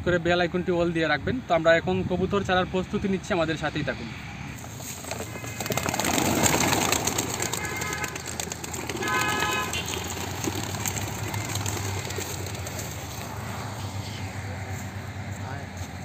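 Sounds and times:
pigeon wings clattering: 4.6 - 13.5
short horn toots: 9.0 - 9.9.

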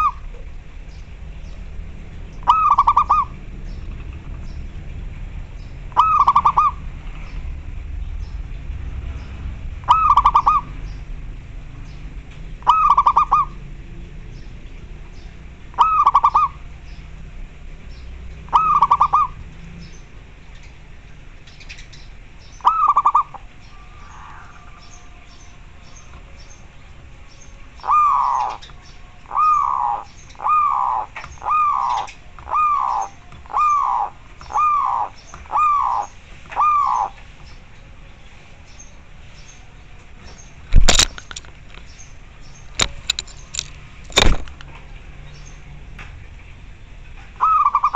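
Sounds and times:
dove cooing: 2.4 - 3.4, 5.9 - 6.9, 9.9 - 10.8, 12.6 - 13.6, 15.7 - 16.6, 18.5 - 19.4, 22.6 - 25.2, 27.8 - 37.2, 47.4 - 47.9.

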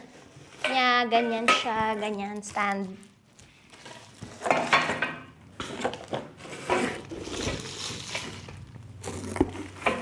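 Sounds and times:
plastic packaging crinkling: 1.9 - 4.7, 5.7 - 9.8.

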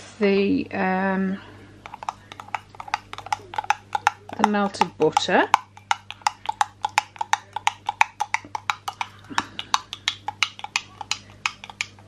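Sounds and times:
spoon clicking against glass jug: 1.8 - 12.0.

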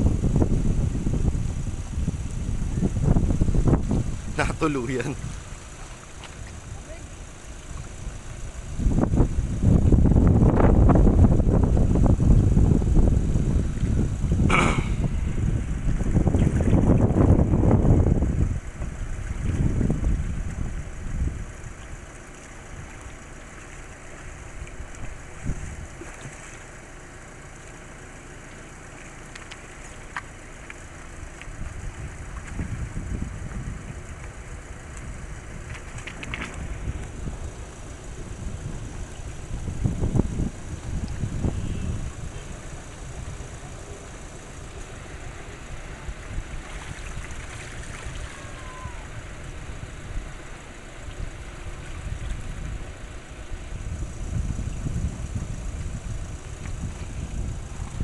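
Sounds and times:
personal watercraft engine: 0.0 - 58.0
wind: 0.0 - 58.0
small waves lapping: 3.8 - 9.5, 18.5 - 54.3
faint clicks: 29.3 - 31.6.

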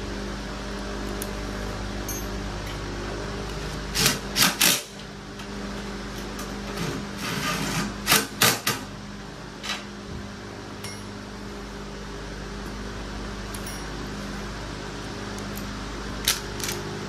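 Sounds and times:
fan humming: 0.0 - 17.0.

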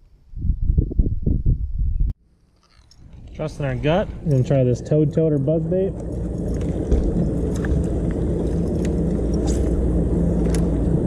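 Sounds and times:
motorboat engine droning: 3.0 - 11.0.

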